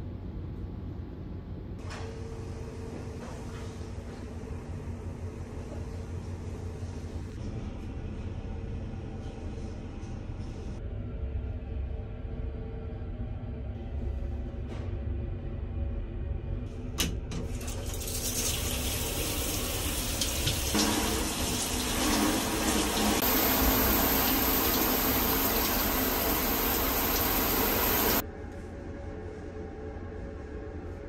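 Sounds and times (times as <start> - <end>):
shower spraying water on wall: 17.6 - 28.2.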